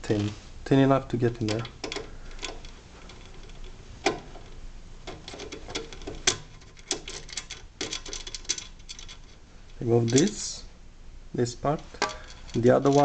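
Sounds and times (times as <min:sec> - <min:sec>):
screwdriver metallic clicks and scrapes: 0:01.4 - 0:10.4.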